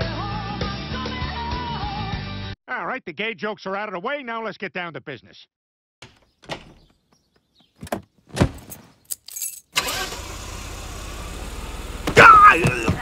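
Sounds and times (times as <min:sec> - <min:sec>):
car doors shutting: 0:07.8 - 0:08.8, 0:09.8 - 0:13.0
car engine running: 0:09.8 - 0:13.0.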